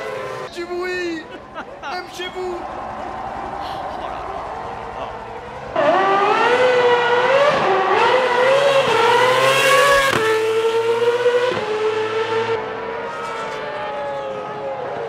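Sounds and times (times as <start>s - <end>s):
racing car engine accelerating: 2.6s - 13.8s.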